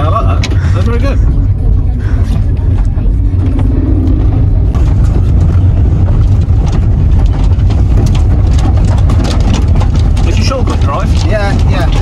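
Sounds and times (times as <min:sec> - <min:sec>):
car engine and tyres droning: 0:00.0 - 0:12.0
knocks and rattles from bumps: 0:04.2 - 0:12.0.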